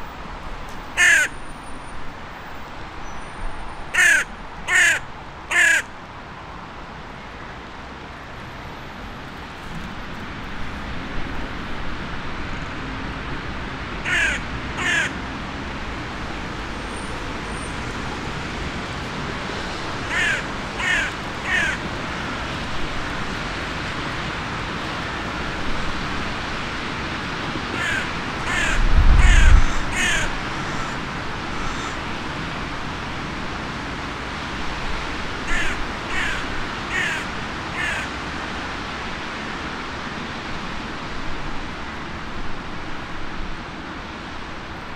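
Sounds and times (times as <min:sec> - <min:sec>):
crow cawing: 0:01.0 - 0:01.4, 0:03.9 - 0:05.9, 0:14.0 - 0:15.2, 0:20.0 - 0:23.2, 0:27.7 - 0:32.2, 0:35.4 - 0:38.4.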